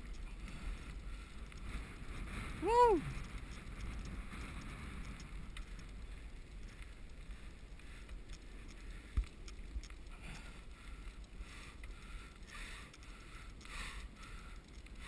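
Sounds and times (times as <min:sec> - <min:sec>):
wheels rolling on asphalt: 0:00.0 - 0:15.0
wind rumbling on microphone: 0:00.0 - 0:15.0.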